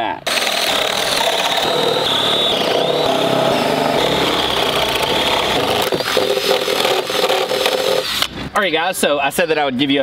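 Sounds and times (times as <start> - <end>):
drill whining boring through wood: 0.3 - 8.3.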